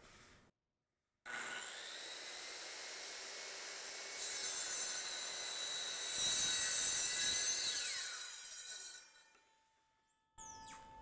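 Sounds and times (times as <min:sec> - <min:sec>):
circular saw cutting wood: 0:01.3 - 0:09.6.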